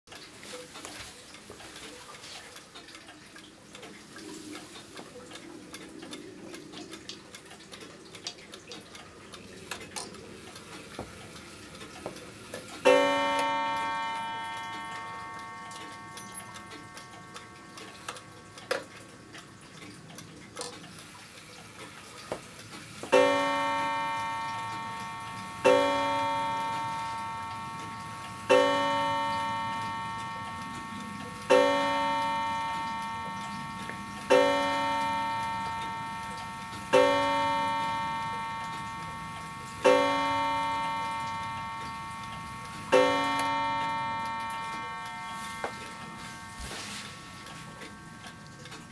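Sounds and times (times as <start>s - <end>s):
faint clock ticking: 0.1s - 48.9s
clock striking: 9.7s - 19.9s, 20.5s - 48.9s.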